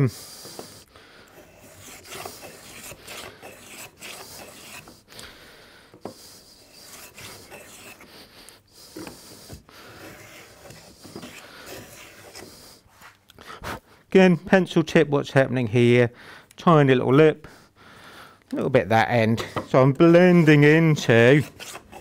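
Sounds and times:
hand plane shaving wood: 0.0 - 5.3, 6.0 - 12.8, 19.4 - 22.0.

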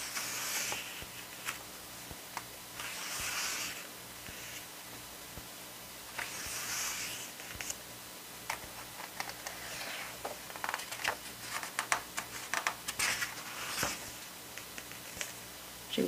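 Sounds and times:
photobook pages turning: 0.0 - 1.7, 2.4 - 4.7, 6.1 - 7.8, 8.5 - 15.4.

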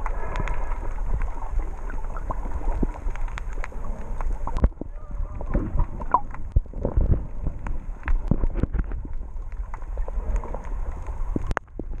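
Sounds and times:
water churning underwater: 0.0 - 12.0
underwater clicks and knocks: 2.2 - 12.0.

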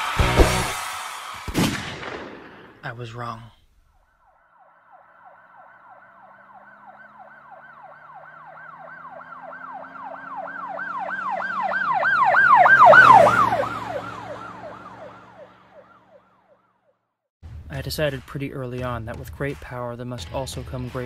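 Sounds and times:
siren yelping: 4.2 - 16.9.

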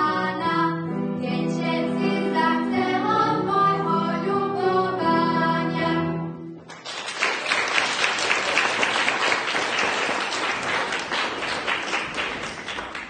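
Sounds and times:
audience applause: 6.7 - 13.0.

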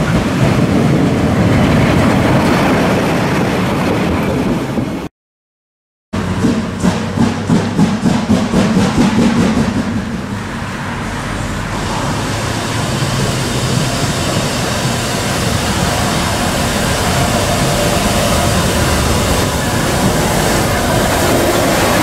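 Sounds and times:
steam locomotive chuffing: 6.2 - 10.7, 11.4 - 22.0
steam hissing: 11.6 - 22.0.

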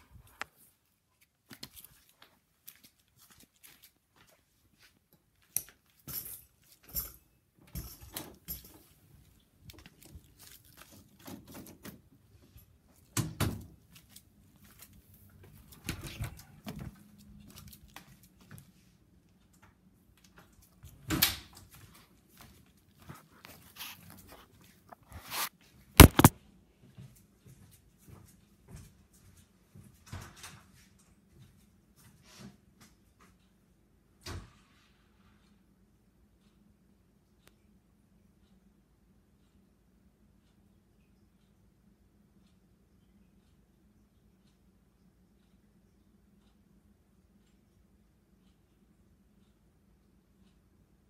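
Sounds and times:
camera handling rustling: 25.0 - 26.3.

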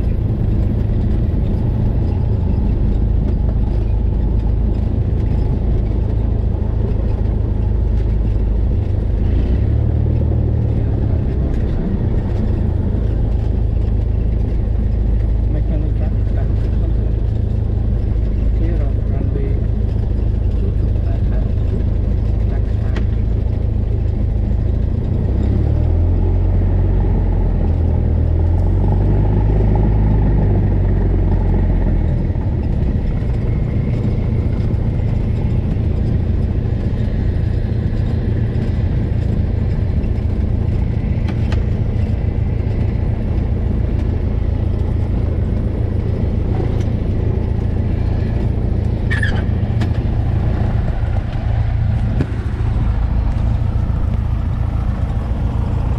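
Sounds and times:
airplane engine and propeller drone: 0.0 - 55.9.

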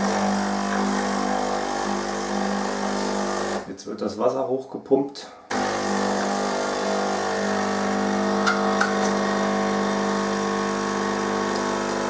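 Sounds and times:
coffee machine water pump humming: 0.0 - 3.7, 5.5 - 12.0.

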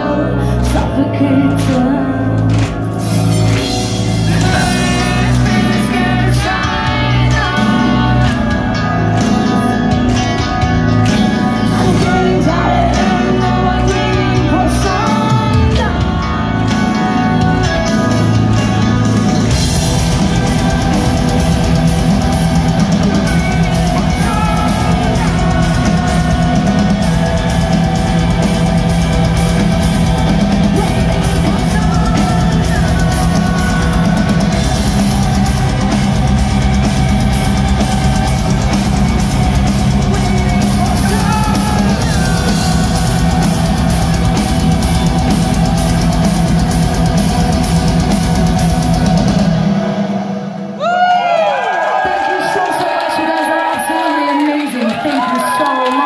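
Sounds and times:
distorted guitars and bass: 0.0 - 50.9
singer's voice: 0.0 - 56.0
fast drumming: 2.5 - 50.2.

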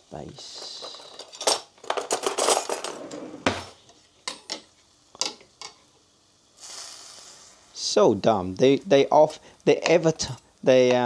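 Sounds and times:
metal utensils clinking on pots: 0.8 - 3.1.

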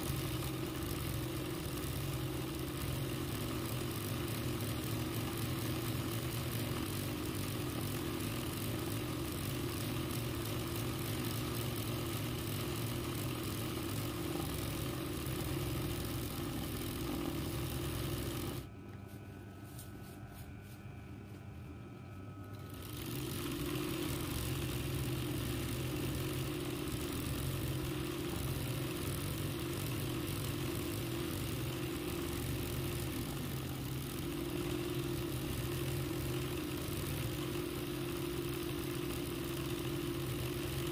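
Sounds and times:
sewing machine stitching: 0.0 - 18.7, 22.6 - 40.9.

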